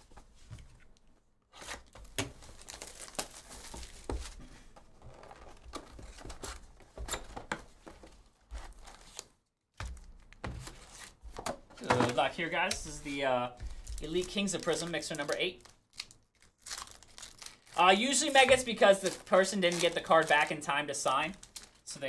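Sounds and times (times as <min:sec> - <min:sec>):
plastic wrap crinkling: 0:01.6 - 0:04.4, 0:12.1 - 0:21.9
foil packs crackling: 0:01.8 - 0:04.4, 0:12.1 - 0:21.9.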